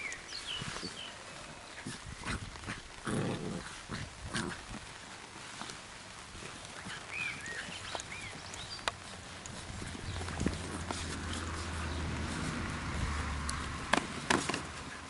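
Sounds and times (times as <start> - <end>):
puppy growling: 1.2 - 5.0
puppies scuffling: 3.6 - 15.0.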